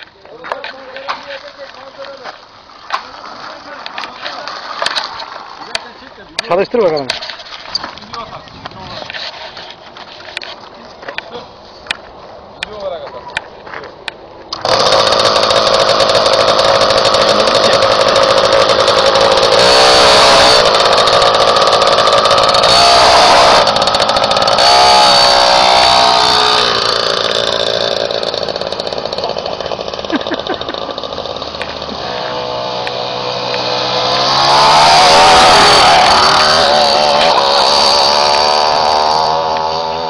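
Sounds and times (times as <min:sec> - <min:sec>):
small bicycle engine revving: 0:14.5 - 0:40.0.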